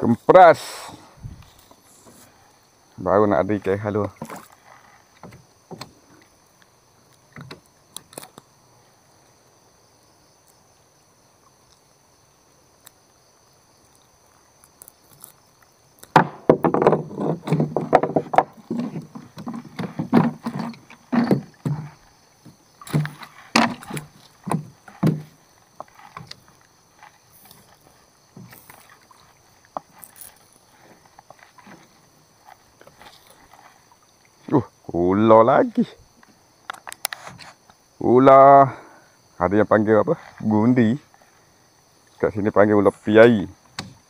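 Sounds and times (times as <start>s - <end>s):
knocks and clatter on hull: 16.2s - 26.3s
water splashing: 17.0s - 34.7s.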